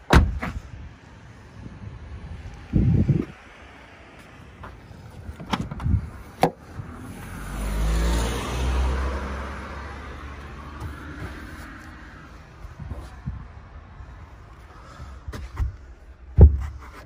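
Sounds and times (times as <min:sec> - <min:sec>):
car passing by: 0:06.7 - 0:12.7.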